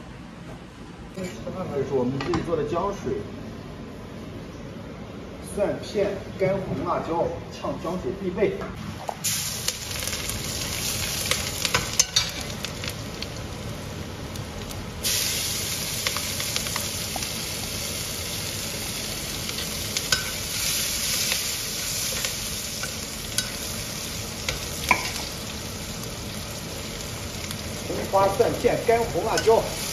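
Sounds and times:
food sizzling in hot oil: 9.2s - 29.9s.

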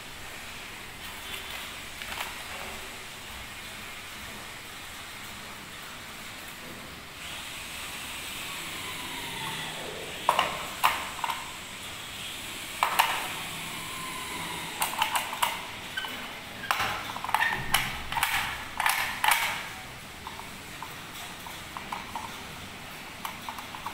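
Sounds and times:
packaging rustling: 1.0s - 2.8s.

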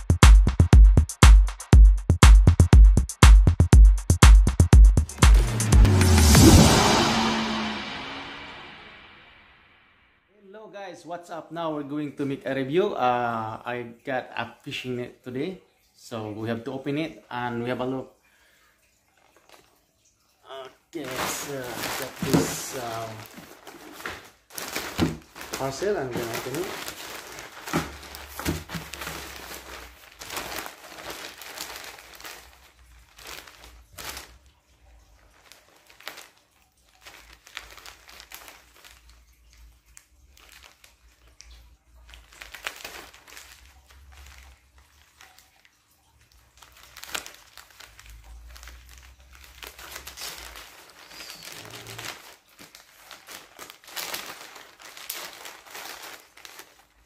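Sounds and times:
plastic bag crinkling: 19.0s - 57.0s.

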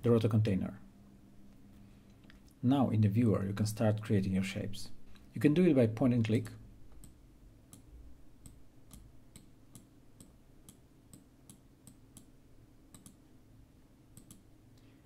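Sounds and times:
faint mouse clicks: 12.9s - 13.2s, 14.2s - 14.9s.

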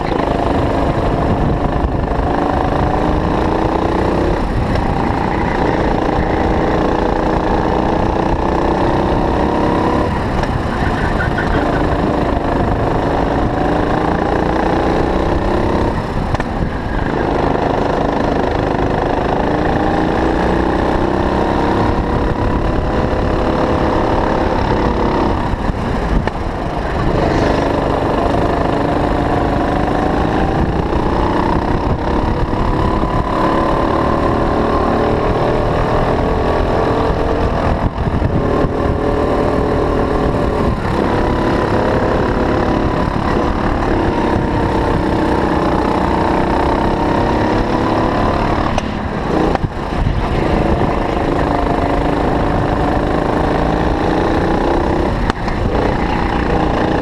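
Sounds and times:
go-kart engine revving: 0.0s - 57.0s.

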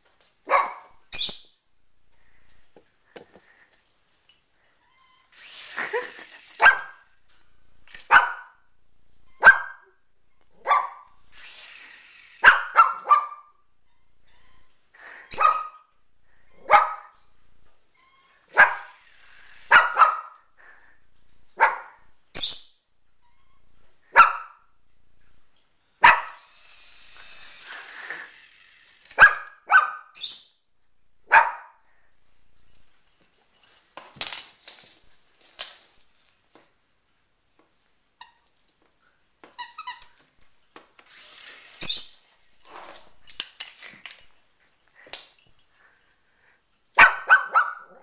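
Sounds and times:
small dog barking: 0.5s - 1.0s, 6.6s - 7.0s, 8.1s - 8.6s, 9.4s - 9.9s, 10.6s - 11.1s, 12.4s - 13.6s, 15.3s - 15.8s, 16.6s - 17.2s, 18.5s - 19.0s, 19.7s - 20.4s, 21.6s - 22.0s, 24.1s - 24.6s, 26.0s - 26.4s, 29.2s - 30.2s, 31.3s - 31.8s, 47.0s - 48.0s.

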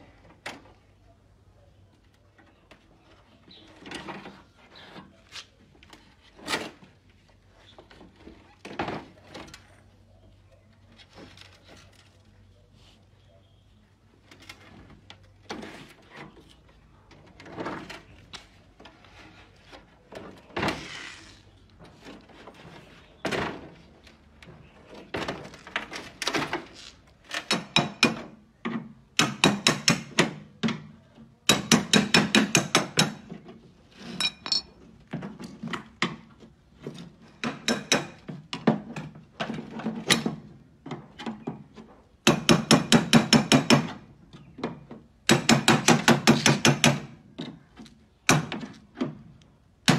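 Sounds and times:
tool tapping on sheet metal: 27.4s - 30.8s, 31.4s - 33.4s, 37.4s - 38.8s, 42.2s - 44.0s, 45.2s - 47.2s
tool scraping metal: 34.0s - 34.7s.

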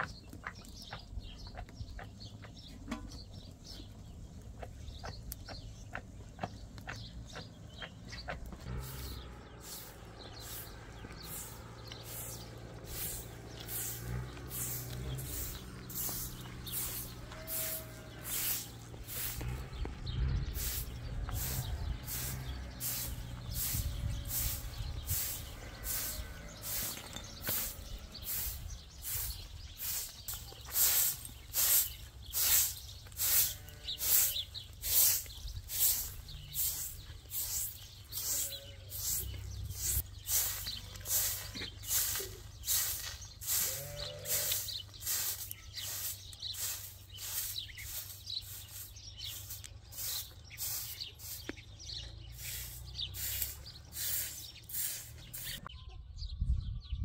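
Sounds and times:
straw broom sweeping ground: 8.7s - 55.7s
faint bird chirps: 37.3s - 57.0s.

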